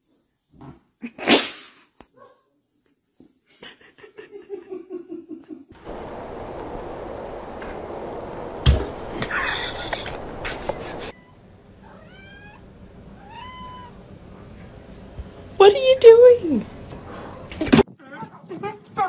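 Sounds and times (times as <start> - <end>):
puppy sneezing: 1.0 - 1.9
room noise hiss: 5.8 - 11.6
quick soft pulses: 5.9 - 11.1.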